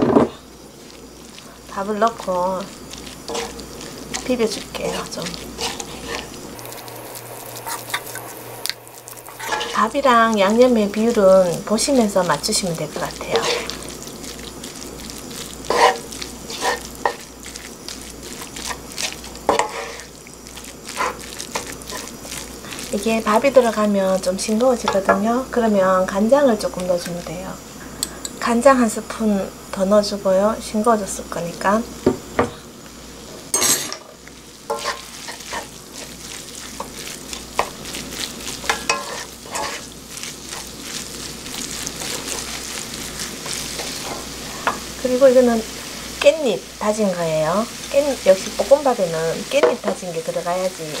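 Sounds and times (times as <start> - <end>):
wooden spatulas scraping pan: 0.0 - 6.4, 9.3 - 10.1, 12.9 - 14.0, 15.4 - 20.2, 20.8 - 23.7, 34.7 - 44.8
fried rice sizzling in pan: 0.0 - 51.0.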